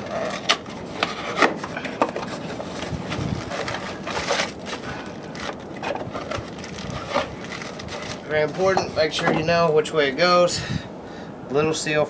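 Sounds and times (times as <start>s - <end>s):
paper and plastic packaging crinkling: 0.0s - 9.4s.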